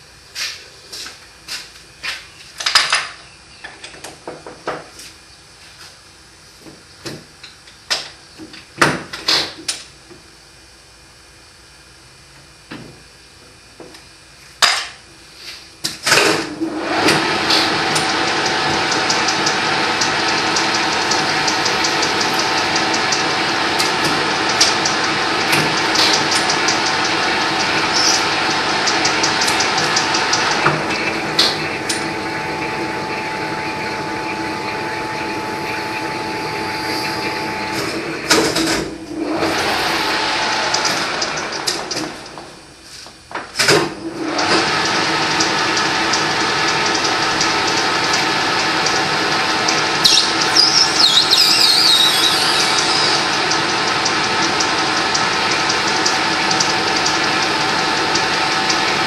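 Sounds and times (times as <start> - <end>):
lathe running with gear whine: 16.2 - 42.6, 44.0 - 59.0.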